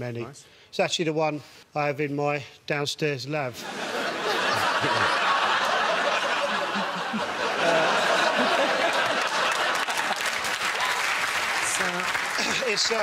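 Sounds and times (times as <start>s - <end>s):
audience laughing: 3.6s - 10.8s, 12.3s - 13.0s.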